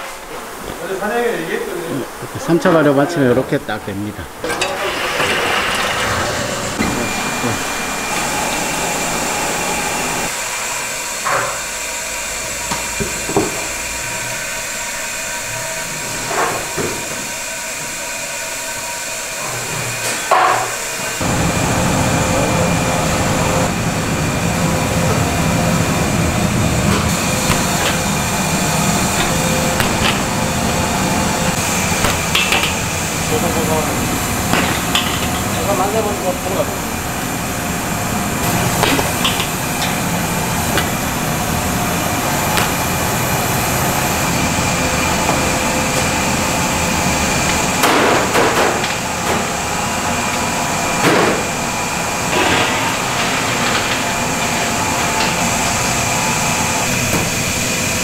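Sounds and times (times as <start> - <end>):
steam hissing: 4.4 - 48.4
knocks of wooden frames and trays: 27.0 - 30.4.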